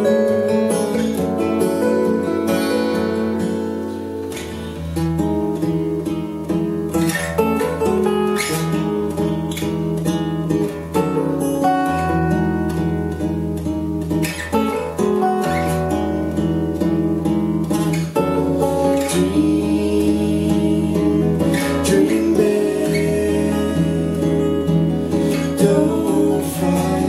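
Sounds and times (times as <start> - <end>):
acoustic guitars strumming chords: 0.0 - 27.0.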